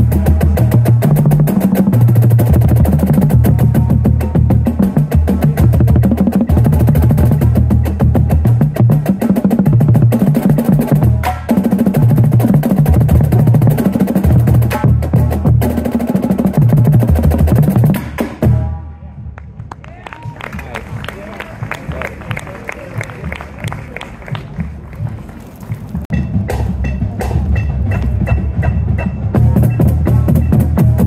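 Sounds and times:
bass drums struck with mallets: 0.0s - 18.8s, 26.0s - 31.0s.

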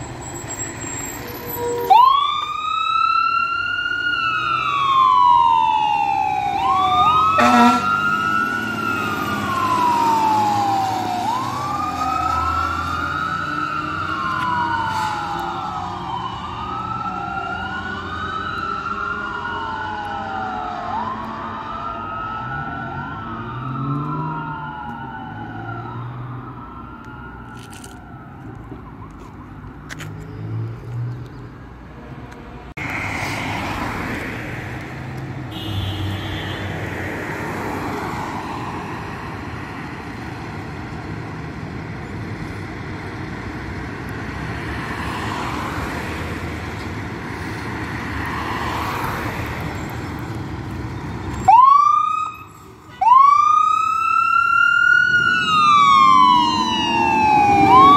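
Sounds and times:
fire engine siren wailing: 0.0s - 29.9s, 43.0s - 57.9s.

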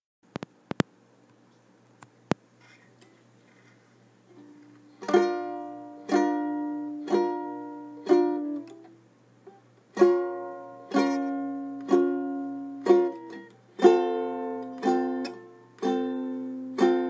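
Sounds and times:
acoustic strings strummed chords: 4.3s - 17.0s.

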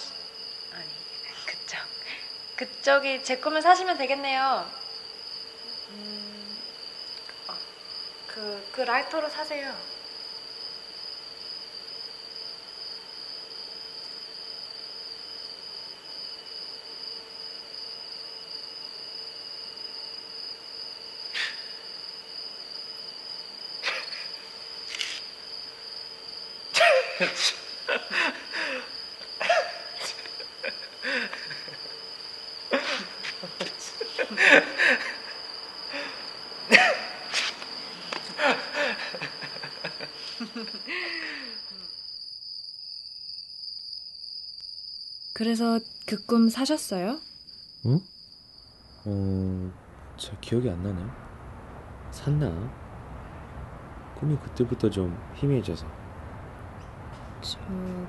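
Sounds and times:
crickets chirping: 0.0s - 58.0s
man and woman laughing: 23.8s - 24.3s, 26.8s - 31.9s, 32.7s - 37.2s, 38.2s - 41.6s.

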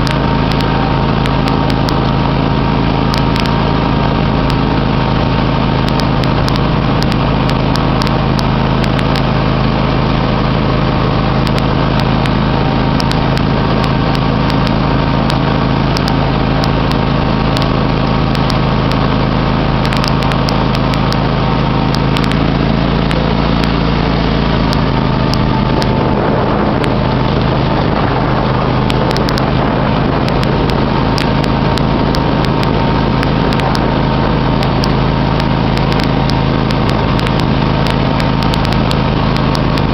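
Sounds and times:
riding mower engine humming: 0.0s - 39.9s.

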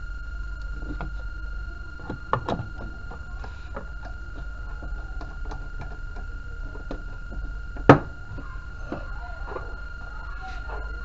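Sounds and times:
low hum: 0.0s - 11.0s
steady high whine: 0.0s - 11.0s
clicks and knocks on plastic cabinet: 7.8s - 8.1s.

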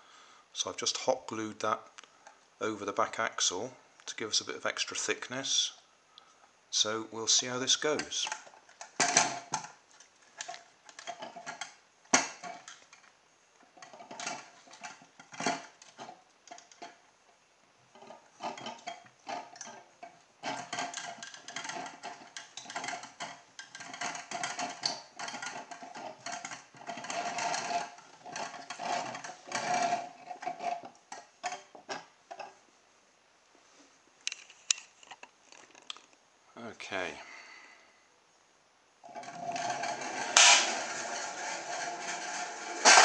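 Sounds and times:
clicks and rattles of metal: 7.8s - 17.0s, 17.9s - 32.6s, 39.1s - 43.0s.

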